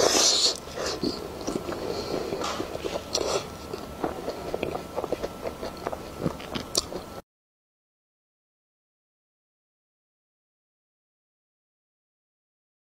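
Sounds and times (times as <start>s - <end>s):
wet chewing: 0.0s - 7.2s.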